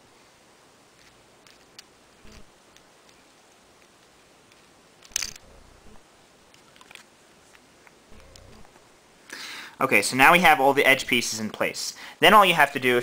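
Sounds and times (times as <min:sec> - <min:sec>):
plastic puzzle pieces clicking: 0:01.0 - 0:01.9, 0:02.7 - 0:05.5.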